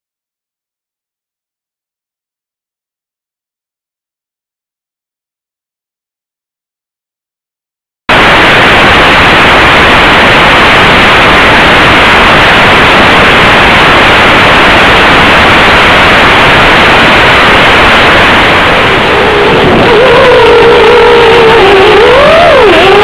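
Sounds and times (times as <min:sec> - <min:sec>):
loud static hiss: 0:08.1 - 0:23.0.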